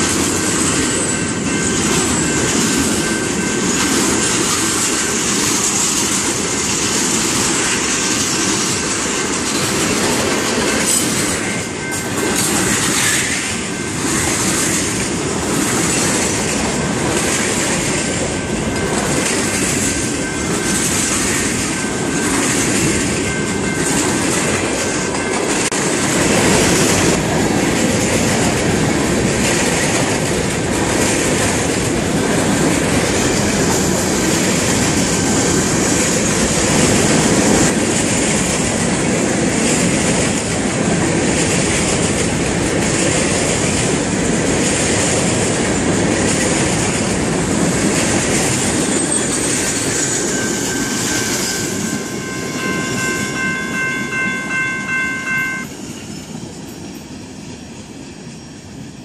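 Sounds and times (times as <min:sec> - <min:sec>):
train wheels on rails: 0:00.0 - 0:59.0
thin high tone: 0:50.0 - 0:57.0.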